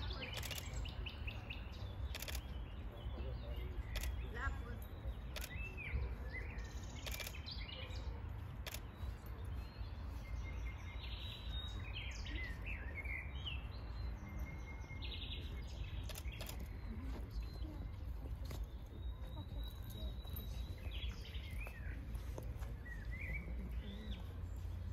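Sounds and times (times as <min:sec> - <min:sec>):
small birds chirping: 0:00.0 - 0:24.9.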